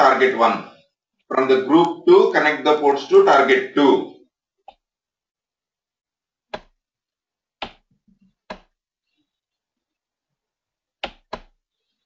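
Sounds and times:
computer mouse clicking: 0:07.6 - 0:07.9, 0:11.0 - 0:11.6.

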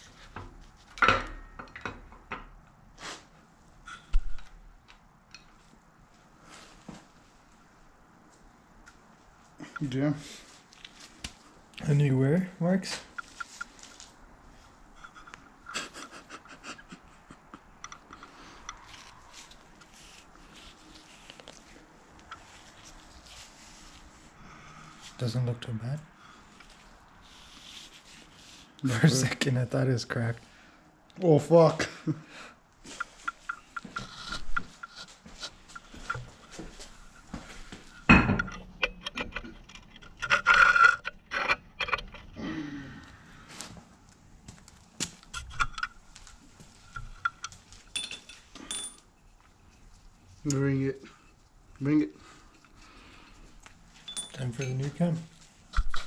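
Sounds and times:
clothing and glove rustling: 0:05.7 - 0:07.6, 0:12.9 - 0:15.6, 0:18.5 - 0:25.3, 0:26.4 - 0:29.4
metal engine parts clinking: 0:46.8 - 0:49.1, 0:54.0 - 0:55.0.

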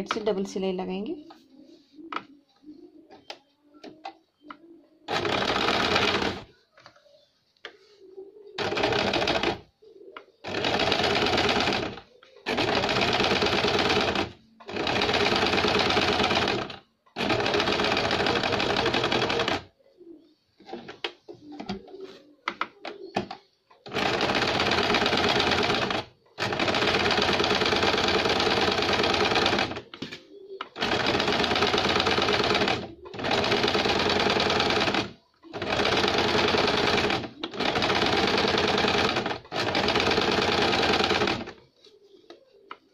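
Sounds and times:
sewing machine stitching: 0:05.1 - 0:06.5, 0:08.6 - 0:09.6, 0:10.4 - 0:19.7, 0:23.1 - 0:30.0, 0:30.8 - 0:41.6.

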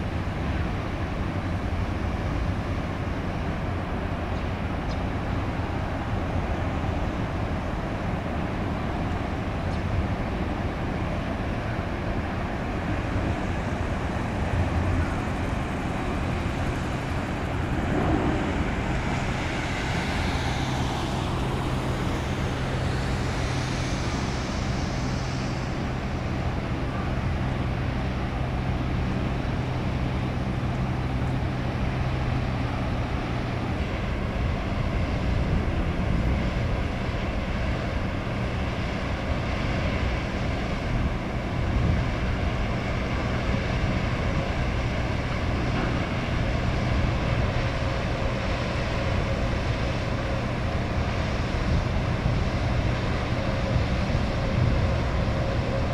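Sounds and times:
low engine drone: 0:00.0 - 0:55.9
outdoor rumble: 0:11.3 - 0:55.9.

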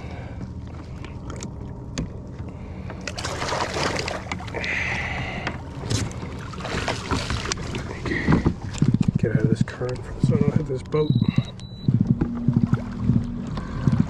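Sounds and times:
water splashing against kayak hull: 0:00.4 - 0:11.0
gear knocking on hull: 0:05.4 - 0:14.0.

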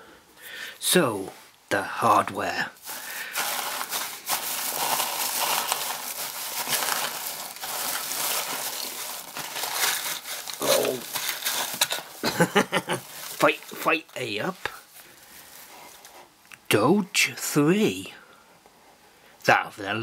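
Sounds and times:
paper filler rustling: 0:02.8 - 0:16.2.

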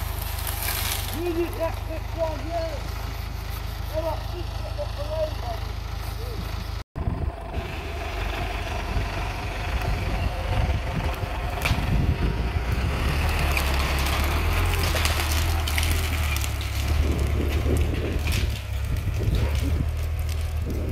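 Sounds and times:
sharp wood cracks: 0:00.0 - 0:03.8, 0:10.9 - 0:20.9
roots and branches tearing: 0:00.0 - 0:04.4, 0:10.9 - 0:20.9
tractor diesel engine under load: 0:00.0 - 0:20.9.

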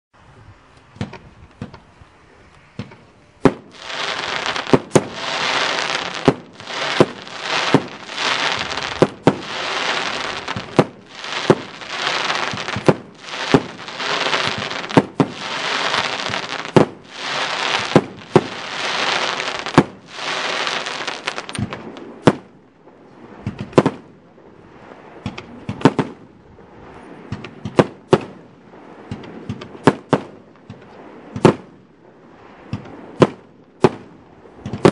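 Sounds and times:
firework bangs: 0:02.8 - 0:22.5
firework hissing: 0:03.7 - 0:22.0.

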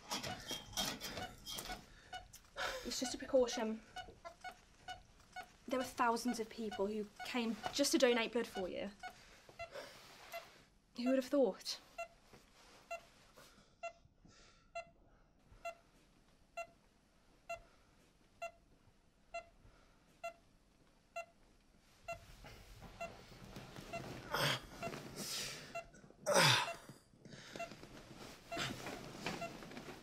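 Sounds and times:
heart monitor beeping: 0:00.1 - 0:09.7, 0:14.8 - 0:15.0, 0:16.6 - 0:16.8, 0:19.3 - 0:19.6, 0:20.2 - 0:20.4, 0:22.9 - 0:26.0, 0:27.5 - 0:30.0.

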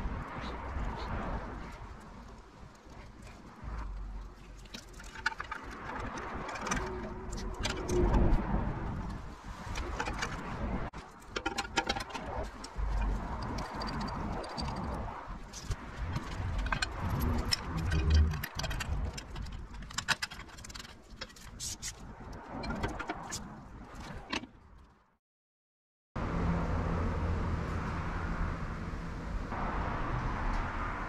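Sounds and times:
small parts clicking and rattling: 0:02.0 - 0:24.9.

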